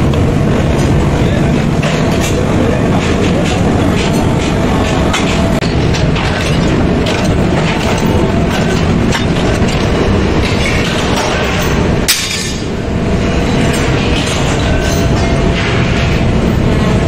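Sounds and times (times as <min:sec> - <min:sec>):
metalworking machinery clattering: 0:00.0 - 0:17.0
sharp metal clank: 0:10.4 - 0:12.7.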